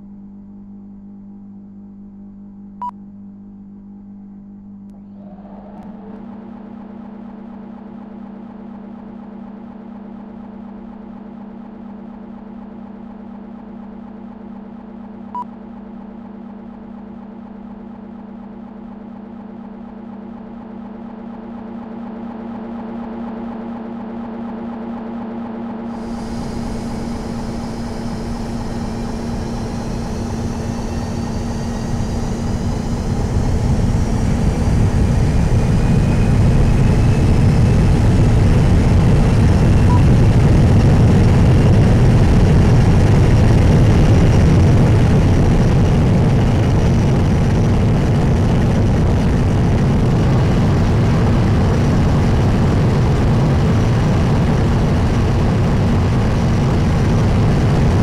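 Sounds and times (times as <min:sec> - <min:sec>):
faint whines rising in pitch: 0:04.9 - 0:58.0
jet engine rumble: 0:05.0 - 0:07.4, 0:25.9 - 0:58.0.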